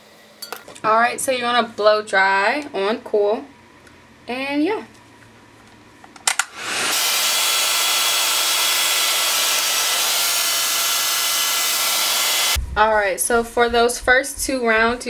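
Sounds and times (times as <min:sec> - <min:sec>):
hair dryer blowing: 0:06.4 - 0:12.6.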